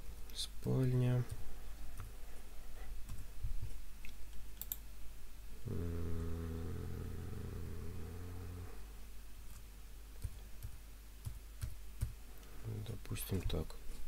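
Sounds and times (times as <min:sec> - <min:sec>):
keyboard and mouse clicks: 0:04.0 - 0:04.8
steady low drone: 0:05.6 - 0:08.9.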